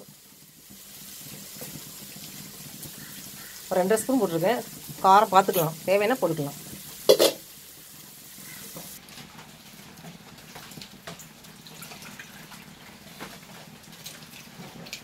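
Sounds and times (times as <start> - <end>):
water drips: 10.6 - 13.3.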